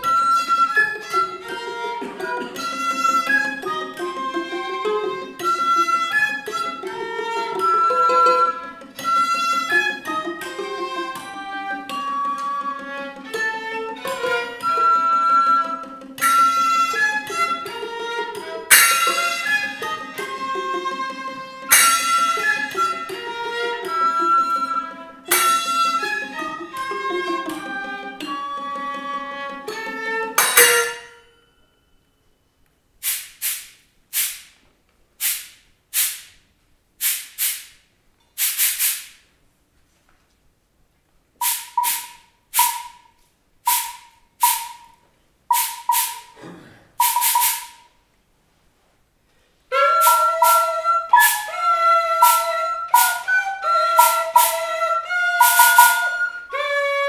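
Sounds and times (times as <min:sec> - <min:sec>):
violin playing: 0:00.0 - 0:31.8, 0:41.4 - 0:46.4, 0:47.0 - 0:47.9, 0:49.7 - 0:57.0
hand cymbals struck: 0:18.7 - 0:19.8, 0:21.7 - 0:22.5, 0:25.3 - 0:26.0, 0:30.4 - 0:32.2, 0:41.4 - 0:46.4, 0:47.0 - 0:48.0, 0:49.8 - 0:56.4
trumpet playing: 0:18.7 - 0:19.8, 0:21.6 - 0:23.0, 0:41.4 - 0:43.0, 0:43.7 - 0:44.9, 0:45.5 - 0:46.4, 0:47.0 - 0:47.8, 0:49.7 - 0:56.7.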